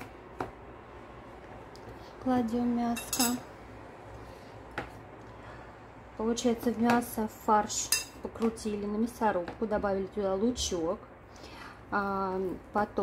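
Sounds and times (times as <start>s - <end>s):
metal spoon clinking on plate: 3.0s - 3.4s.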